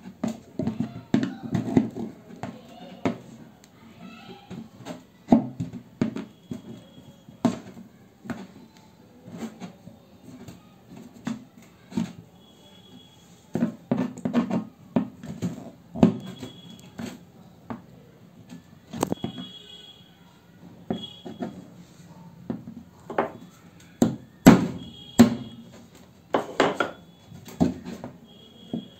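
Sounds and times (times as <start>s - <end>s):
hollow plastic knocks and clicks: 13.5s - 17.9s.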